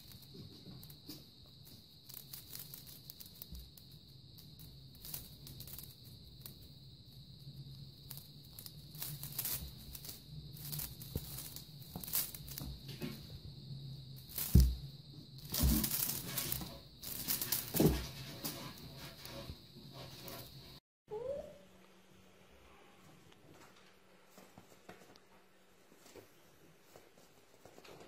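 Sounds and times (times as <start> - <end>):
feathers rustling: 0.0 - 6.7, 7.6 - 13.5, 14.1 - 20.8
faint steady hum: 0.0 - 28.0
claws scratching on a mat: 8.0 - 13.4, 15.4 - 20.8
kitten scuffling on a mat: 8.5 - 13.5, 14.2 - 20.8, 23.5 - 28.0.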